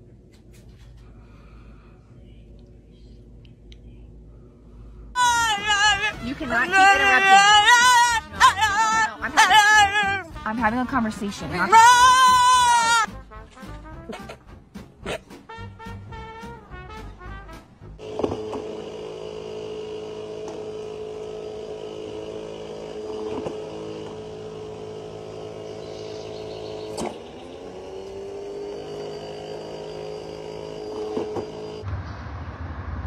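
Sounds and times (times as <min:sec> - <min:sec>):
electric motor whirring: 0:05.2 - 0:10.2, 0:18.0 - 0:31.8.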